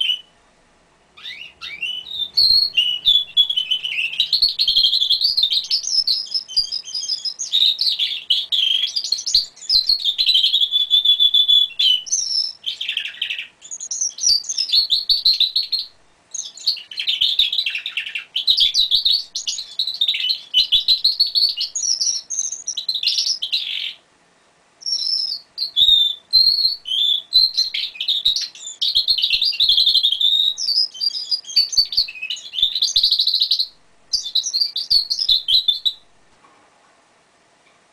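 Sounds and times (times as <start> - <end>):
canary singing trills: 0.0 - 0.4, 1.1 - 24.0, 24.8 - 36.3.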